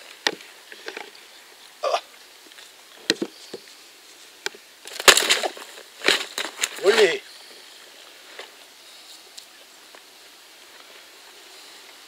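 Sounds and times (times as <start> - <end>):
rustle: 0.0 - 12.0.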